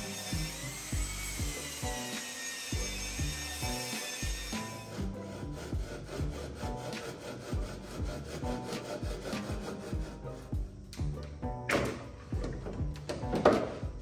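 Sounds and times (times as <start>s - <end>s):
hand saw cutting wood: 0.0s - 10.7s.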